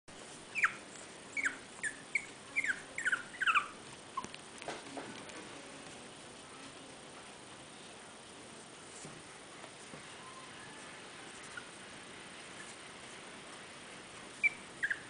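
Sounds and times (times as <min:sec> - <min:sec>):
puppy whining: 0:00.5 - 0:04.4, 0:10.1 - 0:11.8, 0:14.3 - 0:15.0.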